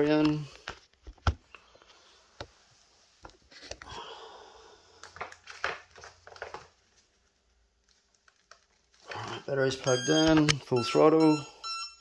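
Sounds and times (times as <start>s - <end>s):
wires rustling: 5.0s - 11.3s.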